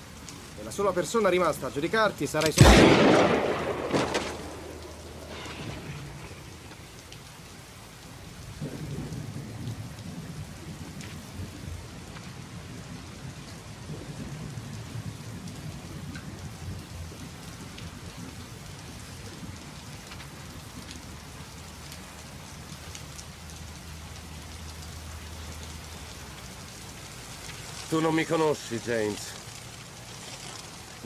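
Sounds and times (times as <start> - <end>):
heavy rain pattering: 0.0 - 31.0
low rumble like thunder: 2.6 - 21.2.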